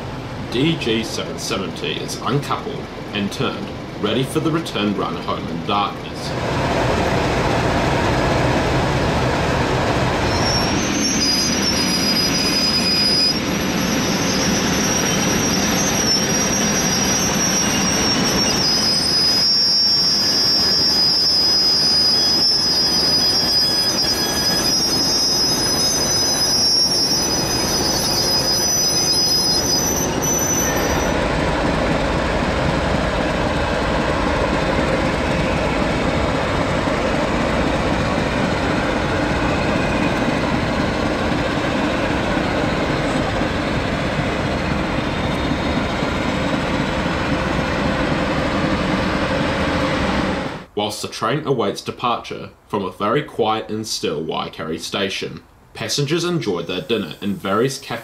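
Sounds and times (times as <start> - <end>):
train wheels squealing: 10.1 - 50.7.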